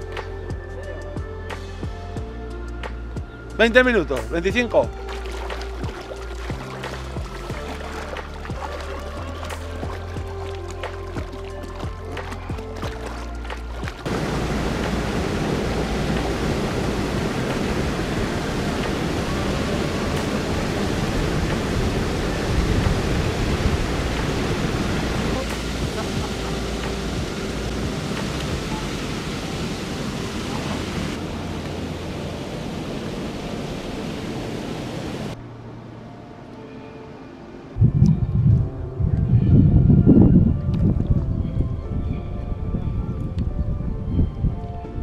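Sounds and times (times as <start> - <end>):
waterfall rushing: 4.8 - 35.4
quiet water hiss: 4.9 - 35.4.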